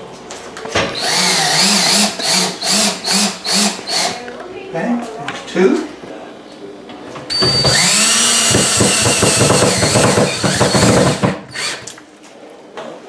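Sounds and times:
cordless drill whining: 1.0 - 4.2, 7.3 - 12.0.

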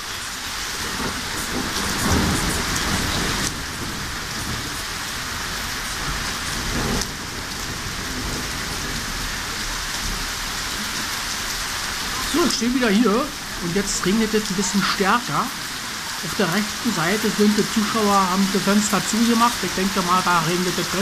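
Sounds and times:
steady rain falling: 0.0 - 21.0
low rumble of thunder: 0.5 - 14.5.

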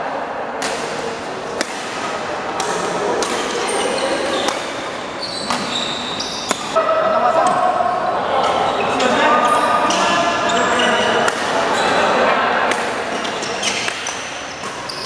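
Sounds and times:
racket hitting shuttlecock: 0.6 - 5.8, 6.4 - 8.7, 11.2 - 11.6, 12.6 - 13.0, 13.8 - 14.9
shoes squeaking on court: 3.3 - 6.8, 7.9 - 12.0, 13.2 - 15.0.

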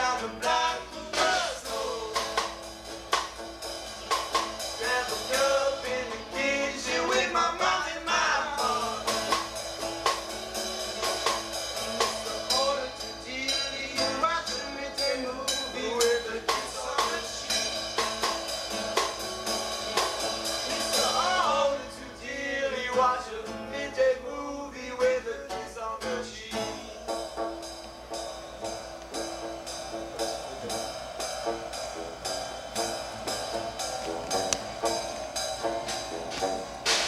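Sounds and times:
man singing: 0.0 - 2.6, 4.8 - 9.3, 12.1 - 17.7, 20.7 - 27.1
acoustic guitar: 0.0 - 37.0
snare drum struck with sticks: 2.2 - 5.0, 9.1 - 10.4, 33.5 - 37.0.

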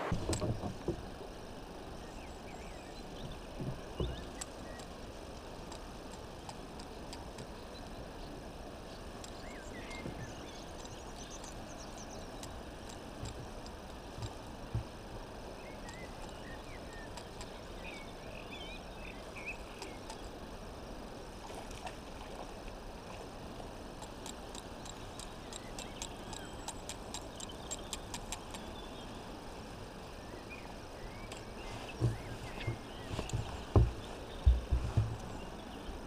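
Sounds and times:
background hiss: 0.0 - 36.0
small birds chirping: 2.0 - 20.4, 24.0 - 29.3, 30.1 - 36.0
soft knocks: 32.0 - 35.3.

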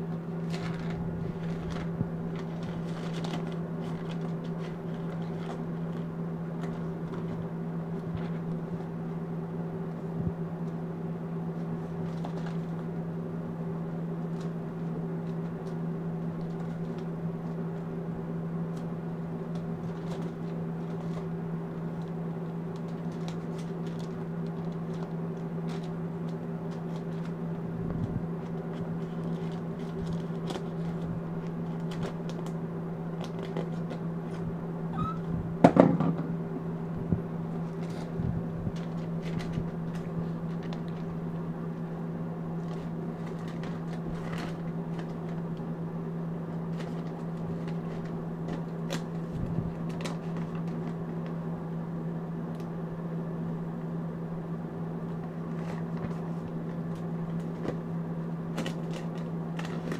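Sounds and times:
steady low hum: 0.0 - 59.9
thin pages rustling: 0.1 - 9.1, 11.5 - 13.0, 18.7 - 34.5, 37.5 - 41.4, 42.6 - 45.7, 46.5 - 51.4, 55.1 - 57.9.

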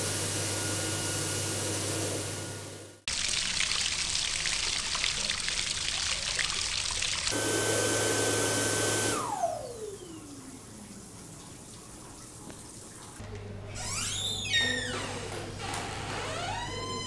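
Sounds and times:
electric hand dryer whine: 0.0 - 2.9, 7.3 - 10.9.

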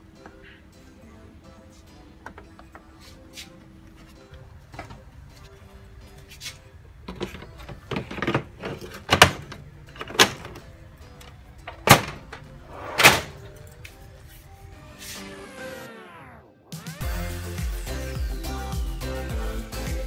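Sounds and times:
faint background music: 0.0 - 20.0
cover shutting thud: 7.1 - 10.6, 11.7 - 13.5.

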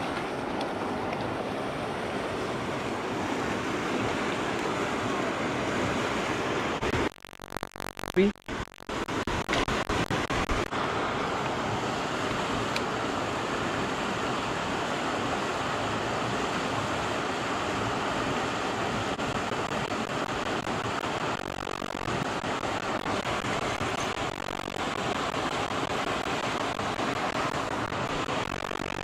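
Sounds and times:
river water rushing: 10.8 - 21.3.

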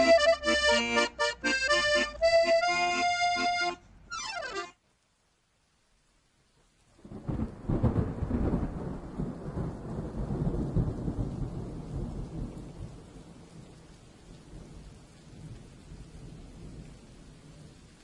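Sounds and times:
rain: 0.0 - 18.0
thunder rolling: 7.0 - 13.1.

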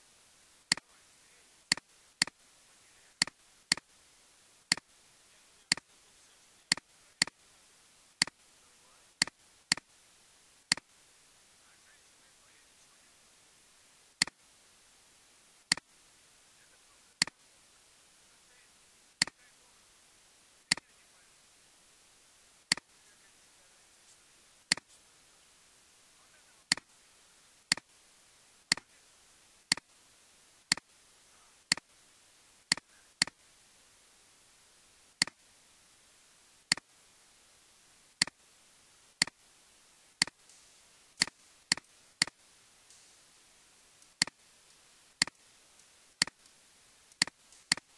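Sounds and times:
faint steady hiss: 0.0 - 47.9
mouse buttons clicking: 1.7 - 2.4, 3.2 - 3.8, 6.7 - 7.3, 9.2 - 9.9, 10.7 - 10.9, 22.7 - 22.9, 32.7 - 33.4, 36.7 - 36.9, 41.2 - 43.0, 45.2 - 47.9.

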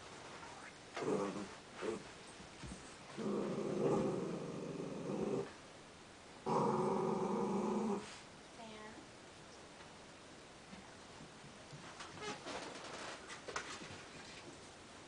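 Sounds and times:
dogs play-growling: 0.3 - 5.6, 6.4 - 8.2.

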